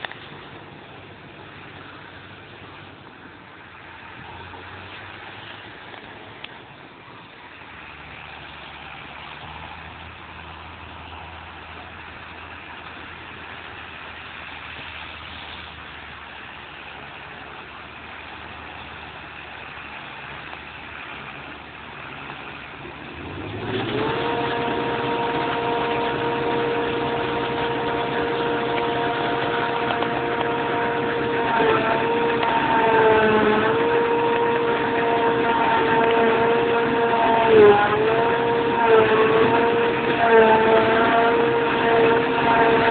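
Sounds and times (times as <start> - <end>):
farm machinery engines running: 0.0 - 42.9
multi-tone machine whine: 21.4 - 42.9.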